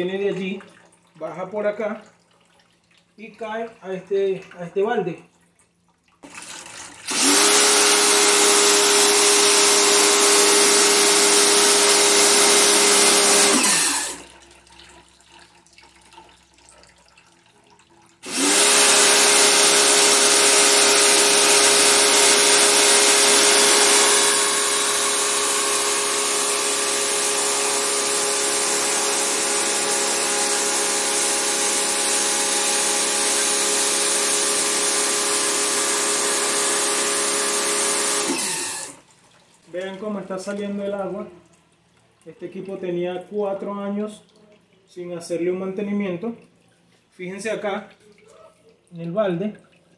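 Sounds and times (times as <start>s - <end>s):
pressure washer motor hum: 6.2s - 14.4s, 18.2s - 39.1s.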